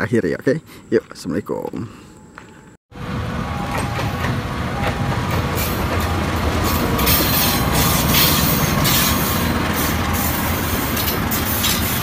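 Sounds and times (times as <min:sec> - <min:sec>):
wheels rumbling on rails: 0:02.9 - 0:12.0
locomotive engine running: 0:03.0 - 0:12.0.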